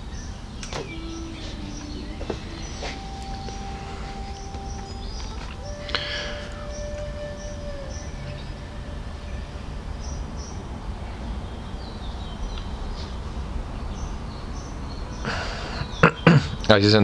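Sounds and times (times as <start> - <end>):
faint high bird chirps: 0.0 - 13.2
tone sliding down: 0.6 - 10.7.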